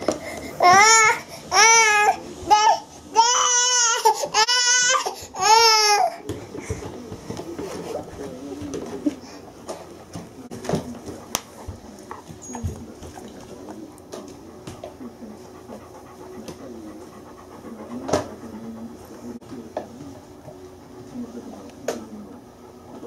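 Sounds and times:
dog panting: 5.1s - 23.0s.

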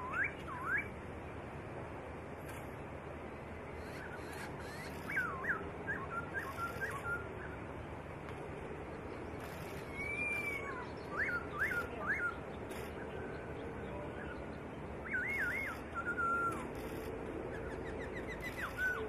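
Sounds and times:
bird singing whistled notes: 0.0s - 1.0s, 3.8s - 7.6s, 9.7s - 19.0s.

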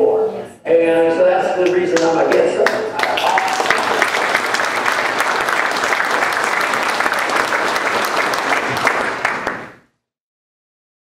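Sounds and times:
audience applauding: 2.0s - 9.9s.

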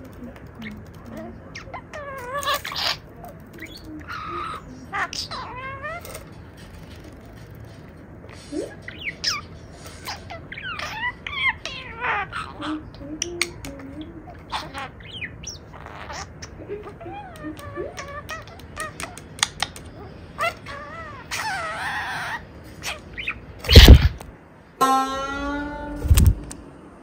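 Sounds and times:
budgerigar chattering and warbling: 0.6s - 6.3s, 8.8s - 24.2s.

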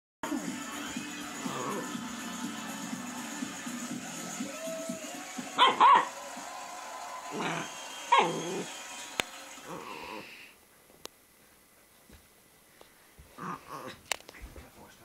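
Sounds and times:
dog barking: 5.6s - 6.1s.

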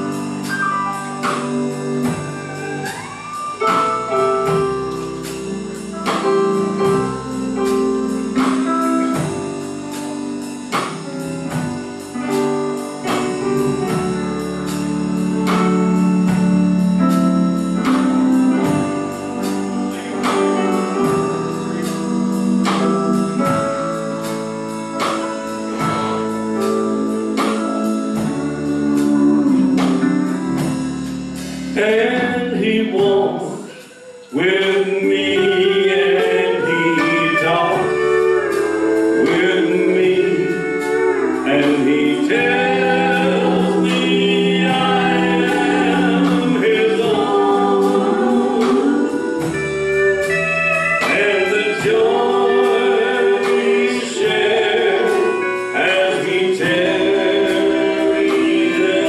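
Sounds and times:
live gospel band playing: 0.0s - 59.0s
man and women singing: 31.8s - 49.7s, 51.0s - 59.0s.

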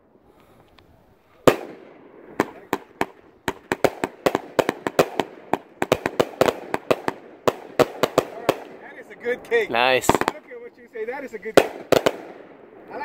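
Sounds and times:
firework cake bangs: 1.4s - 8.9s, 11.4s - 12.6s.

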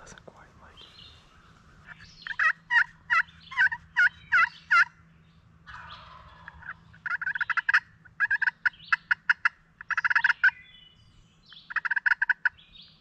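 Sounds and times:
turkey yelps: 1.8s - 4.9s, 5.6s - 10.5s, 11.5s - 12.6s.

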